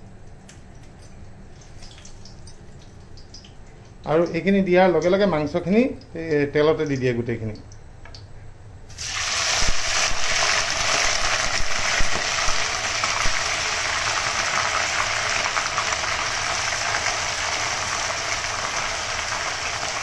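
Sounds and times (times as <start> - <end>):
meat sizzling in hot oil: 8.9 - 20.0.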